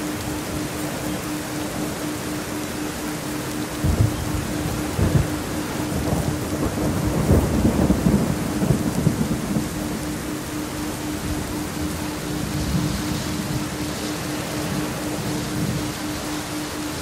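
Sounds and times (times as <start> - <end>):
steady rain falling: 0.0 - 17.0
thunder rumbling: 3.8 - 16.0.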